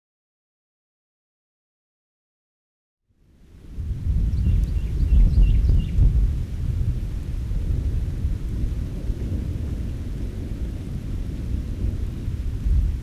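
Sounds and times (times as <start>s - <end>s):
rain hiss: 3.2s - 13.0s
thunder rumble: 3.6s - 13.0s.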